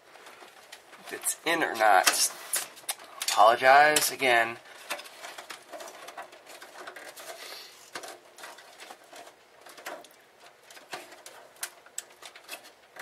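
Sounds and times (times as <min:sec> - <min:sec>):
clicks and knocks inside computer case: 0:03.9 - 0:13.0.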